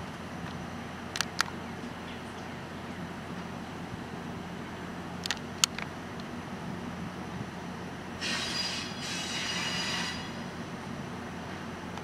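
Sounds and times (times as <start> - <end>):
diesel locomotive hum: 0.0 - 12.0
wheel flanges squealing on rails: 8.2 - 10.7.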